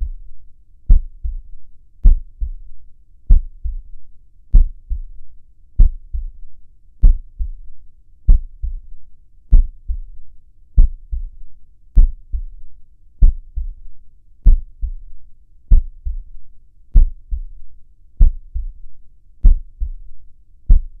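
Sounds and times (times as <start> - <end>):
heartbeat lub-dub: 0.0 - 0.3, 0.9 - 5.2, 5.8 - 6.4, 7.0 - 7.7, 8.3 - 8.9, 9.5 - 10.2, 10.8 - 11.4, 12.0 - 12.6, 13.2 - 15.1, 15.7 - 17.6, 18.2 - 21.0.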